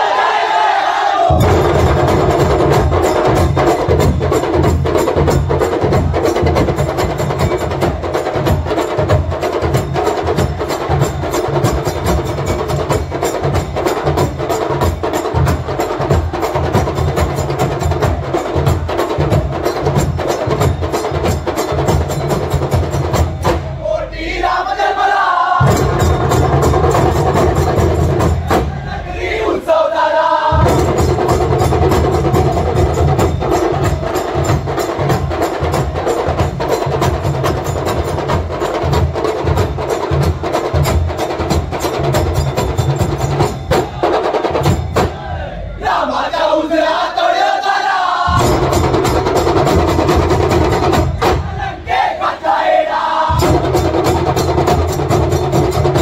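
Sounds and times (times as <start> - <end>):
drum and cymbal ensemble: 1.1 - 56.0.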